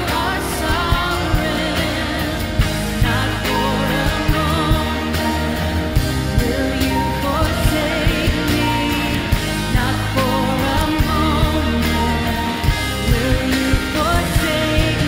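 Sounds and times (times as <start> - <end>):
person singing: 0.0 - 15.0
worship band playing: 0.0 - 15.0.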